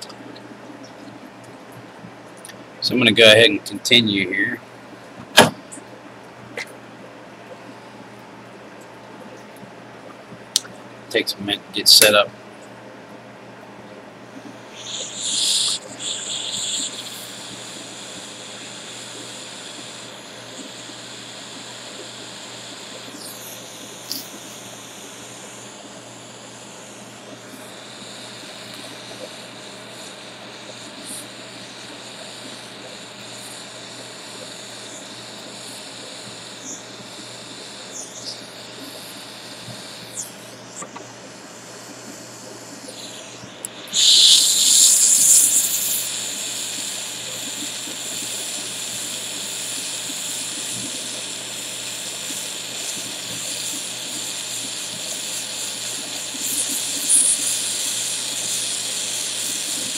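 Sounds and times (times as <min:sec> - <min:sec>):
gas torch hissing: 0:05.3 - 0:05.8, 0:14.4 - 0:59.9.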